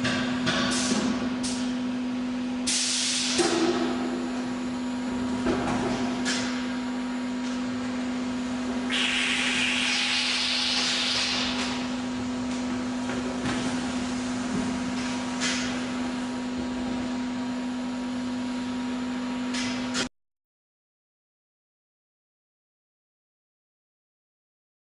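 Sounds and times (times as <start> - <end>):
filling machine hum: 0.0 - 19.3
loud hiss: 8.9 - 11.5.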